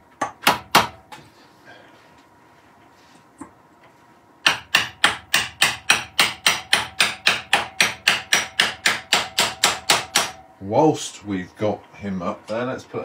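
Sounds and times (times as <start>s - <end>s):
hammer striking wood: 0.2s - 1.0s, 4.4s - 10.4s.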